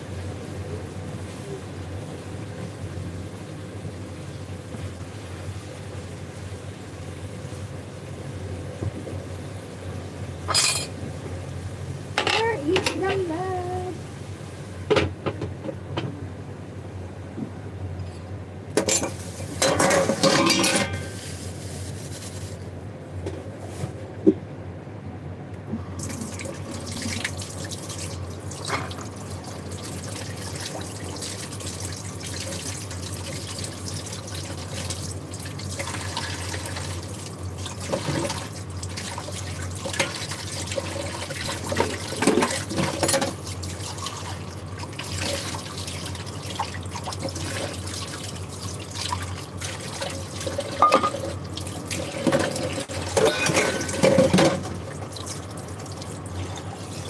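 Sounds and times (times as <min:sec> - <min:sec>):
utensil clattering against bowl: 0:12.2 - 0:13.2, 0:18.8 - 0:21.2, 0:50.6 - 0:51.3, 0:52.2 - 0:54.7.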